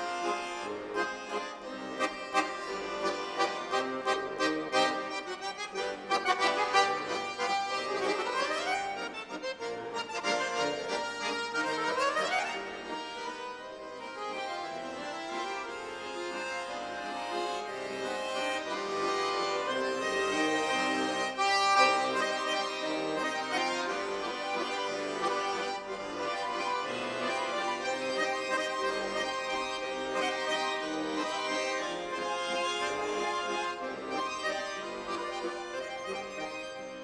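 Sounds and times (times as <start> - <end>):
accordion playing lively solo: 0.0 - 37.0.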